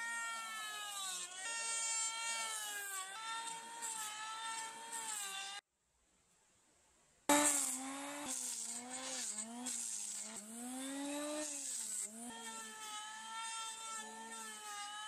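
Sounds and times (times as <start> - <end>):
electric planer motor whine: 0.0 - 5.6, 7.3 - 15.0.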